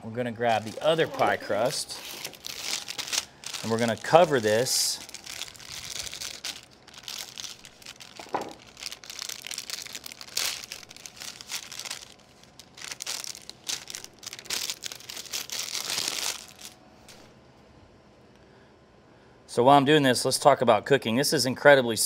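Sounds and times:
wrapping crinkling: 0.4 - 17.2.

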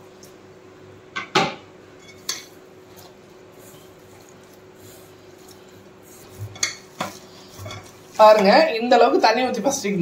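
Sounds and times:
hand mixing dough in a bowl: 2.6 - 10.0.

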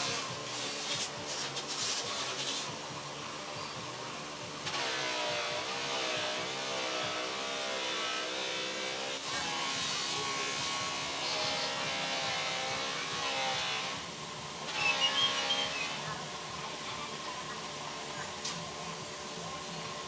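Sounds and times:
buffing wheel hiss: 0.0 - 20.0
bench buffer motor buzz: 4.6 - 16.4.

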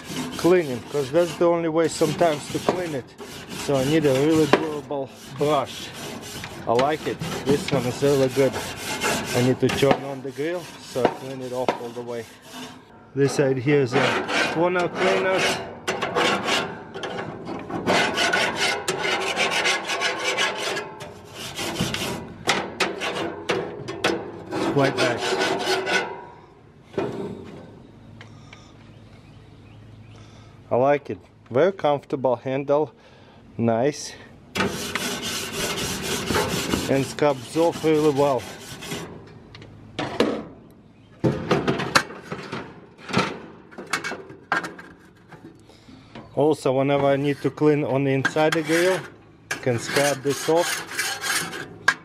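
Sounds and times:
wire brush scrubbing grill grates: 0.0 - 12.8, 13.8 - 16.6, 24.6 - 25.9, 34.6 - 39.1, 48.3 - 49.0, 49.6 - 51.6.

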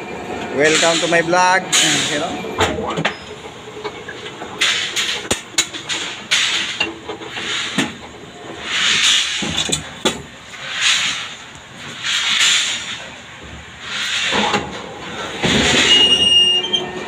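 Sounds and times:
bending machine hissing bursts: 0.6 - 2.5, 8.6 - 16.8.

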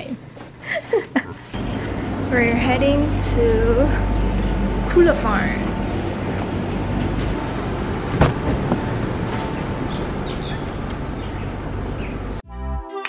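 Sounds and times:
low rumbling noise: 1.5 - 12.4
sharp knock: 8.2 - 8.9
music: 12.4 - 13.0.

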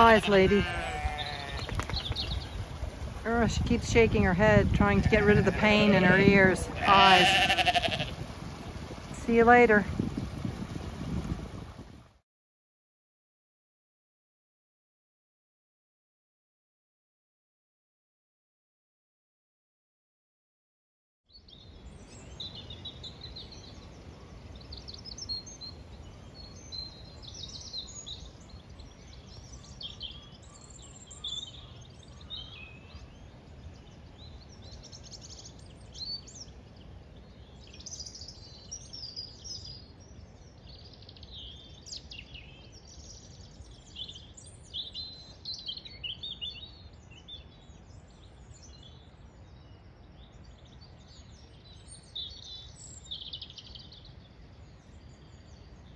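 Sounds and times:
birds chirping: 0.0 - 10.2.

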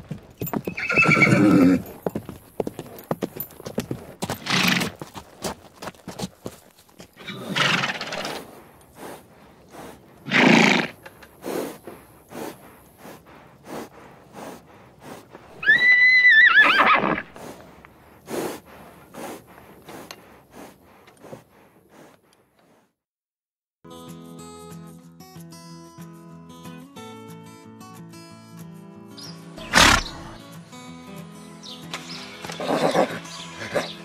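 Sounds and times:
horse hooves clip-clopping: 0.0 - 22.7
horse whinny: 0.6 - 2.0, 4.3 - 5.0, 7.2 - 8.5, 10.2 - 11.1, 15.5 - 17.4, 29.6 - 30.4, 32.5 - 34.0
horse snorting: 0.6 - 22.9, 29.6 - 30.4, 32.4 - 34.0.

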